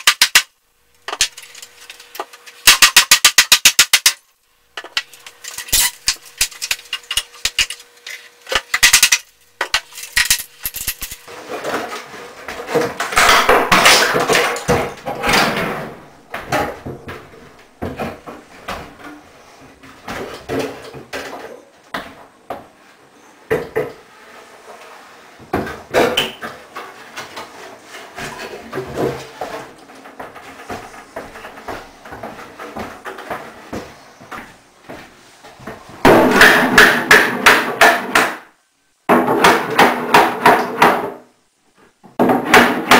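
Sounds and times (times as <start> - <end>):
cabinet scraping and creaking: 11.2 - 22.1, 22.7 - 34.4
wooden cabinet bumps: 12.5 - 19.1, 42.0 - 42.9.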